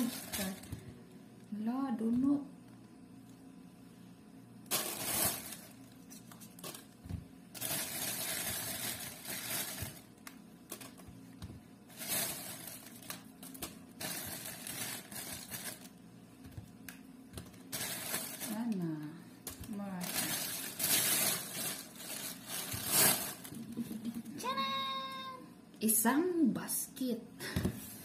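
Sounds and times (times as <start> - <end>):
plastic bag crinkling: 0.0 - 0.8, 4.7 - 11.1, 11.9 - 16.0, 17.4 - 18.9, 19.5 - 24.2.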